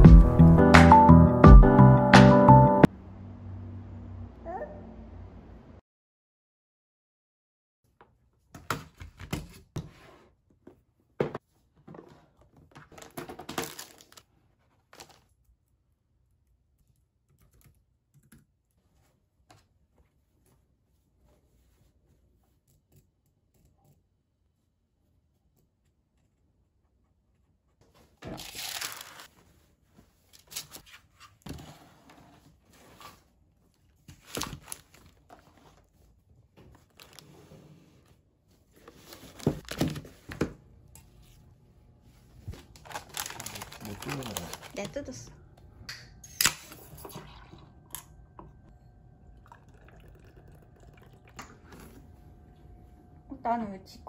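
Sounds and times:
plastic packets rustling: 12.9 - 14.3, 28.3 - 29.3, 42.6 - 45.2.

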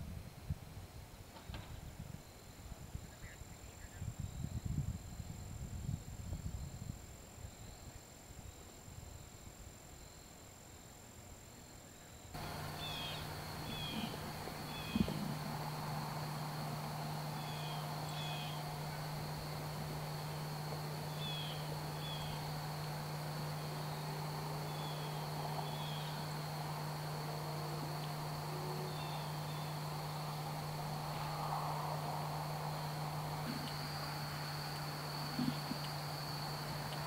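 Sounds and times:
insects droning: 0.0 - 37.0
low steady hum: 0.0 - 37.0
paired bird chirps: 12.4 - 15.8, 20.8 - 22.6.

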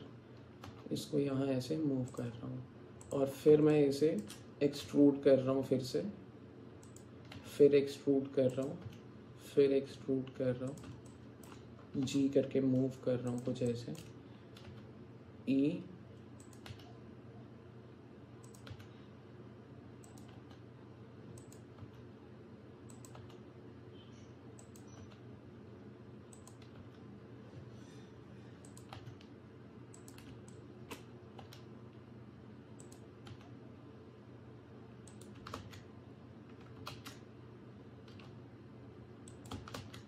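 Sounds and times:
faint low hum: 0.0 - 40.0
keyboard keystrokes: 16.4 - 16.9, 18.4 - 18.9, 22.9 - 23.4, 29.9 - 31.7, 35.0 - 35.9, 36.5 - 37.2, 39.2 - 40.0.

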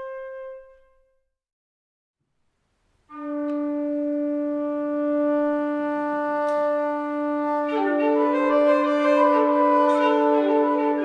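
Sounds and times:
wind instrument melody: 0.0 - 1.2, 3.1 - 11.0
wind instrument low drone: 3.1 - 11.0.

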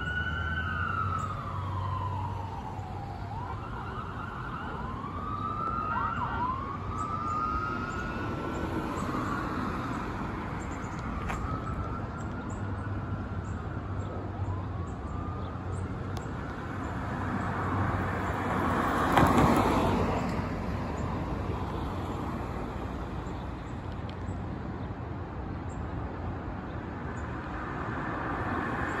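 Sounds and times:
fire engine siren wailing: 0.0 - 21.2
road traffic passing: 0.0 - 29.0
car passing close: 17.1 - 20.7.

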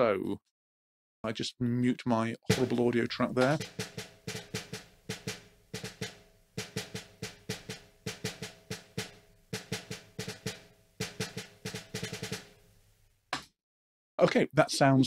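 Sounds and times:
snare drum hits: 2.5 - 12.7.

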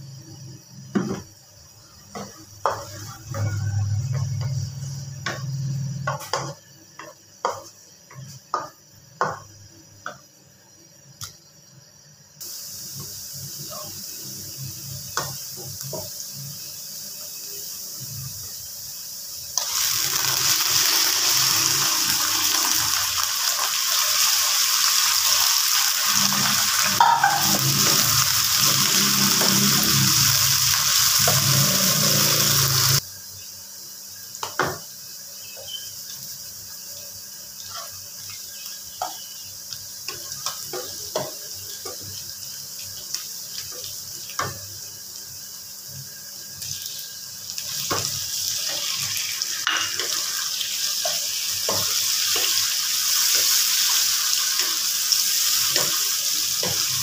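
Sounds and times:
quiet frying hiss: 6.6 - 57.0
chicken sizzling in hot oil: 11.9 - 57.0.

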